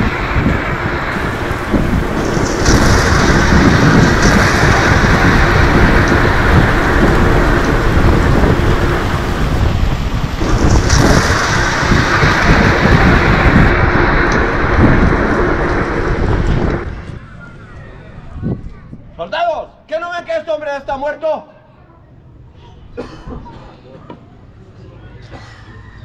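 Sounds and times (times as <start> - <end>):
rain-like hiss: 0.0 - 17.0
rolling thunder rumble: 0.0 - 19.1.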